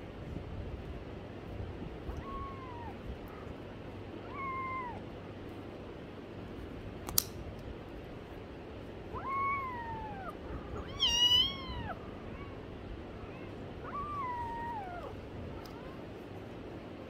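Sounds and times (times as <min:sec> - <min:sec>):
kitten meowing: 0:02.1 - 0:03.0, 0:04.2 - 0:05.0, 0:09.2 - 0:12.6, 0:13.3 - 0:15.9
sharp click: 0:07.0 - 0:07.7.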